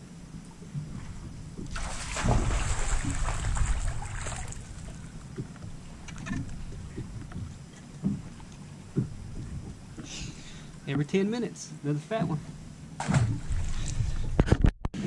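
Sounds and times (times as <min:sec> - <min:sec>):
fish splashing and thrashing in water: 0:01.6 - 0:07.1, 0:13.0 - 0:14.2.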